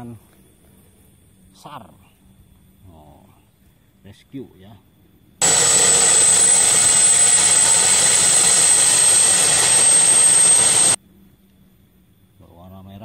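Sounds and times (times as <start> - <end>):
helicopter engine and rotor noise: 5.4 - 11.0
helicopter turbine whine: 5.4 - 11.0.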